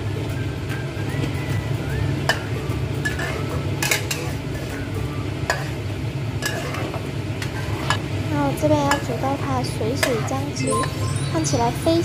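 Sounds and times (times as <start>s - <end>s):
light sizzling: 1.9s - 12.0s
spoon scraping eggs in pan: 3.1s - 4.8s, 6.4s - 8.0s, 10.0s - 10.4s.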